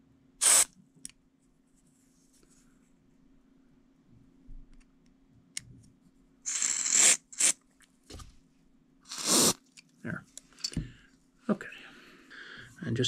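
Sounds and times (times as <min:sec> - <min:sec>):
aerosol spray hissing: 0:00.4 - 0:00.7, 0:06.5 - 0:07.6, 0:09.1 - 0:09.6.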